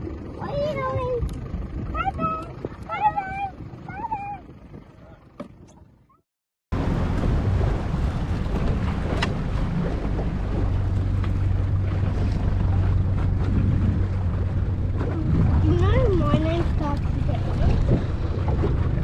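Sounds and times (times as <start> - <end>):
wind buffeting microphone: 0.0 - 5.2, 6.8 - 19.0
water noise: 0.0 - 19.0
low steady hum: 6.8 - 19.0.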